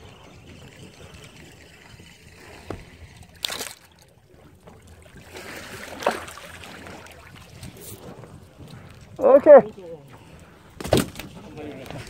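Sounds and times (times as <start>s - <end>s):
sea water sloshing beside boat: 0.0s - 12.0s
fish splashing: 2.4s - 4.0s, 5.0s - 7.8s.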